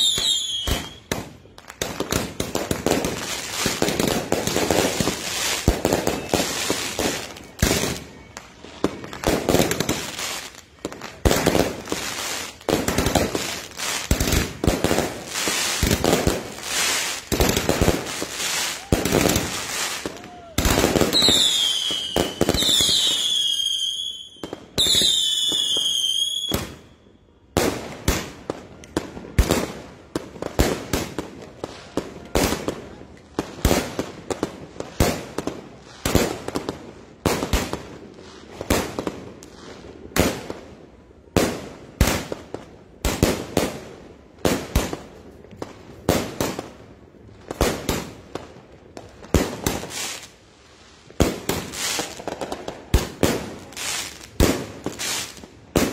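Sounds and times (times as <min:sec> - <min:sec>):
firework whistles falling: 0:00.0 - 0:01.4, 0:04.9 - 0:08.4, 0:18.3 - 0:27.0
firework bangs: 0:00.0 - 0:26.9, 0:51.1 - 0:55.9.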